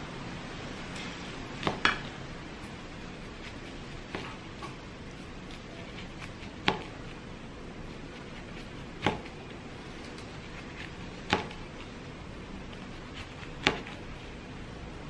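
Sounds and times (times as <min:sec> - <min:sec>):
knife slicing through food: 0:05.4 - 0:07.2, 0:12.7 - 0:14.3.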